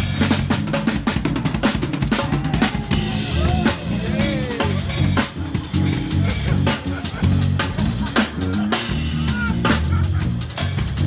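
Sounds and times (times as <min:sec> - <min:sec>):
bass guitar notes: 0:00.0 - 0:11.0
drum kit playing: 0:00.0 - 0:11.0
electric guitar: 0:00.0 - 0:11.0.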